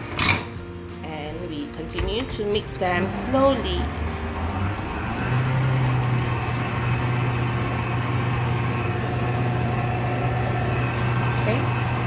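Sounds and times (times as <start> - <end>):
stand mixer motor humming: 2.4 - 12.0.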